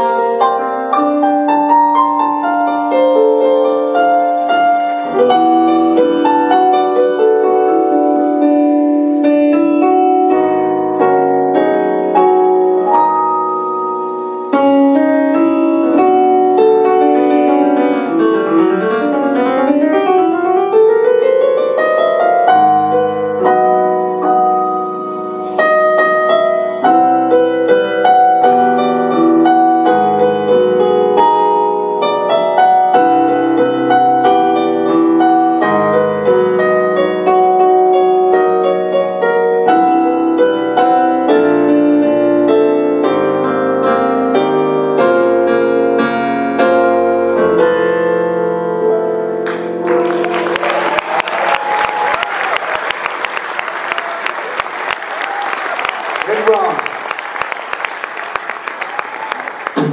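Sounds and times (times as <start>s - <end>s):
solo piano: 0.0s - 55.5s.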